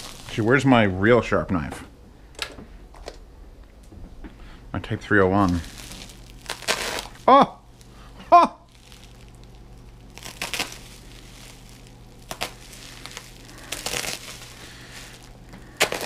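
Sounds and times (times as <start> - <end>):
bubble wrap crinkling: 0.0 - 0.8, 5.1 - 16.0.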